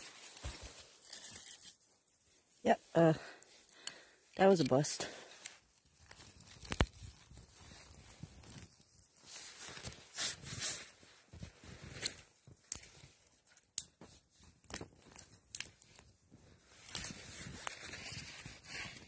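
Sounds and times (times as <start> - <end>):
twig fire crackling and popping: 2.8 - 10.8, 11.9 - 19.0.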